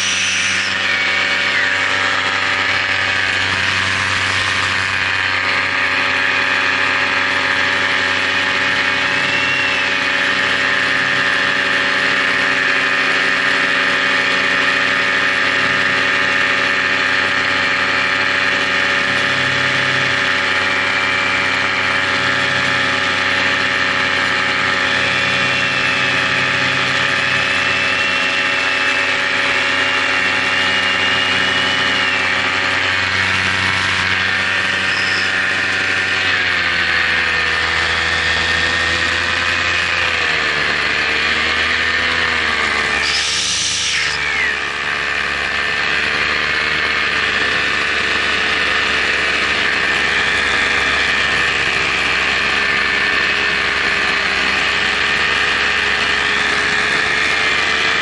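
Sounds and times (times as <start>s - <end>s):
paramotor engine running: 0.0s - 58.0s.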